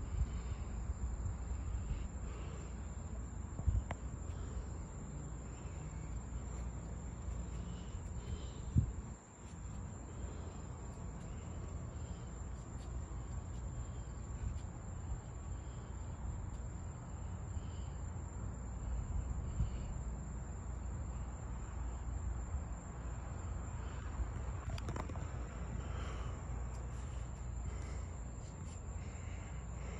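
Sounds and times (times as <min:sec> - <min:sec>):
low steady rumble: 0:00.0 - 0:18.0
insect chirps: 0:00.0 - 0:29.9
insects droning: 0:00.0 - 0:29.9.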